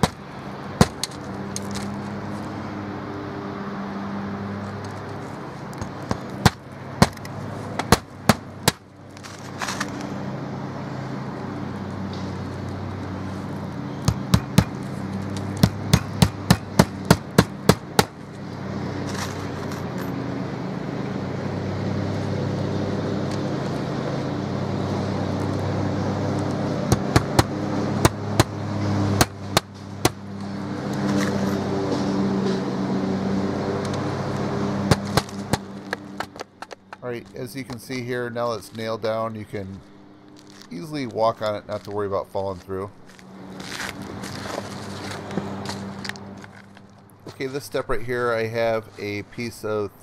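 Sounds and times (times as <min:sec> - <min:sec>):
hammer striking nails into metal: 0:00.0 - 0:00.2, 0:05.8 - 0:08.8, 0:14.0 - 0:14.8, 0:15.5 - 0:18.2, 0:26.9 - 0:28.6, 0:29.2 - 0:30.2, 0:34.8 - 0:36.4.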